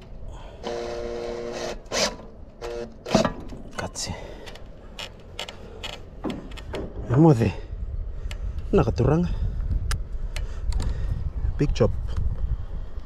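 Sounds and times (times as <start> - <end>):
cordless drill driving screw: 0.6 - 3.3
sharp clicks and knocks: 1.8 - 7.2.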